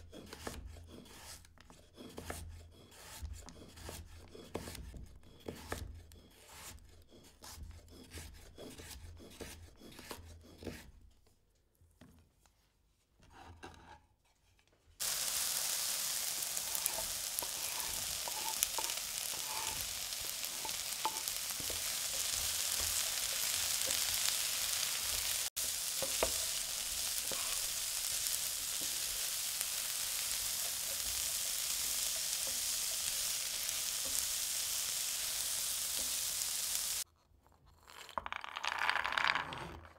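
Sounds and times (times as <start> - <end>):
knife chopping vegetables: 0.0 - 10.9
vegetables sizzling in hot oil: 15.0 - 37.0
stirring knocks in pan: 16.4 - 24.2, 25.2 - 27.7.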